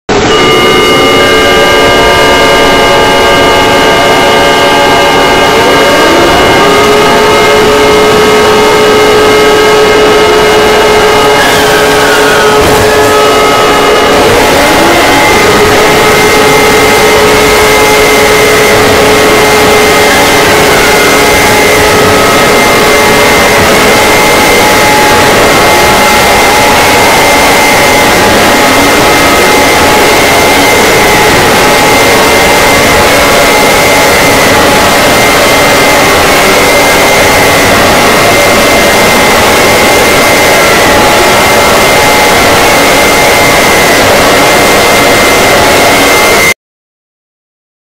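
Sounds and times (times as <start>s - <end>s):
harsh static noise: 0.0s - 46.6s
distorted emergency alert alarm tones: 0.1s - 46.6s
rising alarm tone: 0.1s - 46.6s.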